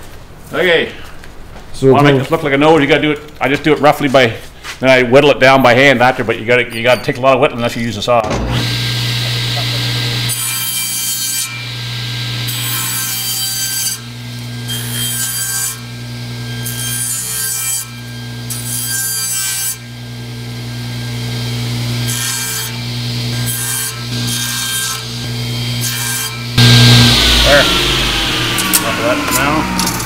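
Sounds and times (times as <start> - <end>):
saw blade cutting wood: 8.2 - 19.9, 21.6 - 30.0
table saw motor hum: 8.2 - 30.0.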